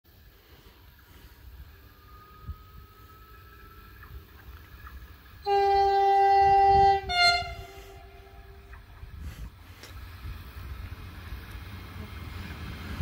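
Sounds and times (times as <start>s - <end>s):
low rumble of train: 0.0s - 13.0s
train horn blasts: 5.4s - 8.8s.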